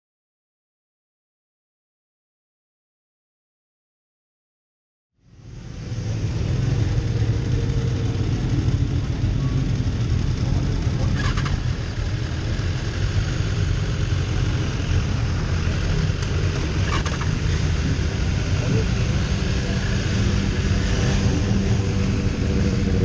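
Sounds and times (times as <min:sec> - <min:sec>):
motorcycles idling: 0:05.2 - 0:23.0.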